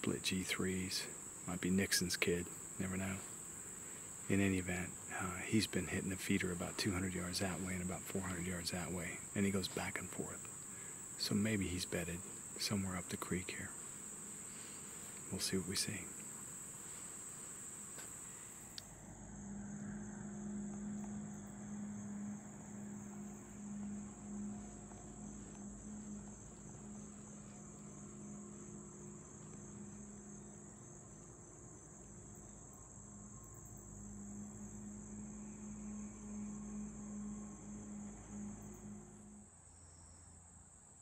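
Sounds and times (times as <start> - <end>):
high-pitched insect chorus: 0.0 - 41.0
low wavering hum: 17.4 - 40.2.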